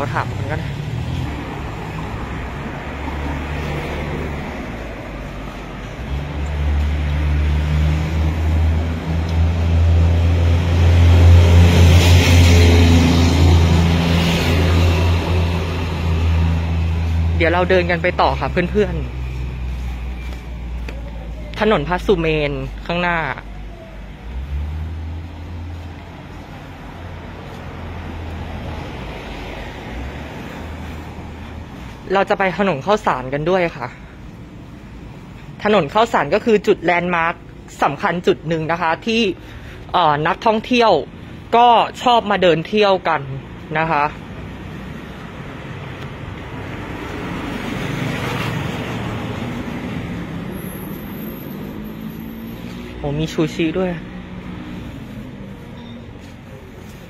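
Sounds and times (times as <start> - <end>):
vehicle engine passing: 0.0 - 32.0, 43.9 - 57.0
city street traffic hum: 0.0 - 57.0
tyre noise on road: 0.0 - 57.0.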